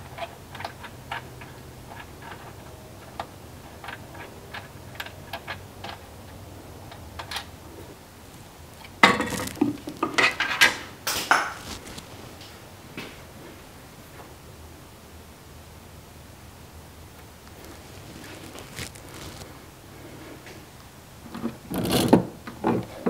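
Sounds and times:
tape pulled off roll: 9.0s - 10.2s.

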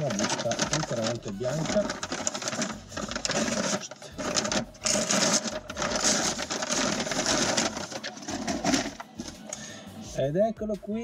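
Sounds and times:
envelope tearing and crinkling: 0.0s - 9.4s.

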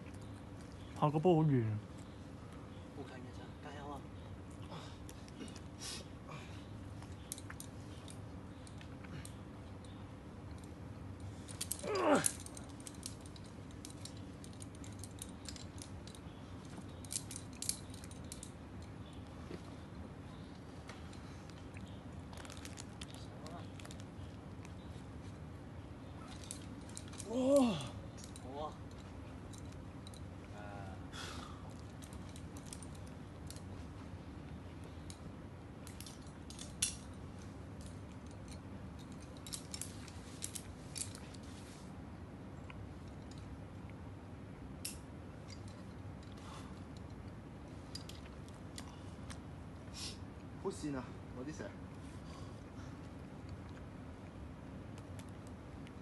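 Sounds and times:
low background hum: 0.0s - 56.0s
carabiners clinking: 7.0s - 25.4s, 26.1s - 30.5s, 31.4s - 33.8s, 34.8s - 41.6s, 43.0s - 43.5s, 44.8s - 49.4s.

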